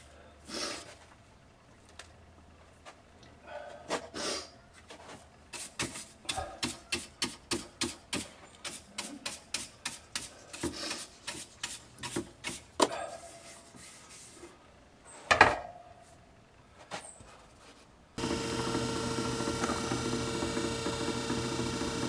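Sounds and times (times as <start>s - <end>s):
stiff brush scrubbing wood: 5.5s - 14.4s.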